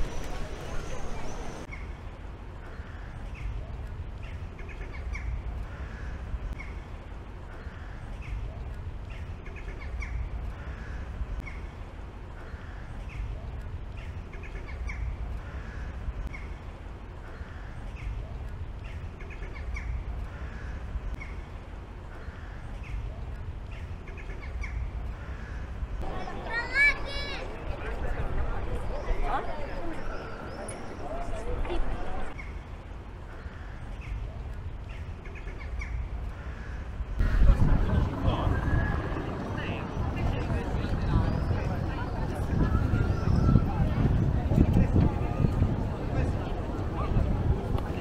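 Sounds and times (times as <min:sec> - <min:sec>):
steady low rumble: 0:30.4 - 0:48.0.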